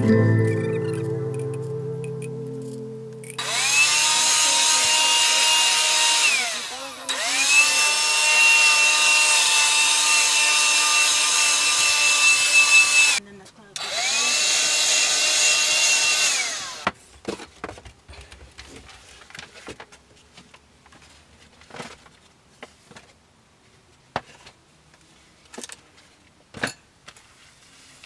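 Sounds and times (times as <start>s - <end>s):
power saw motor whining: 3.2s - 13.2s, 13.8s - 16.9s
knocks and clatter of handled objects: 17.0s - 23.2s.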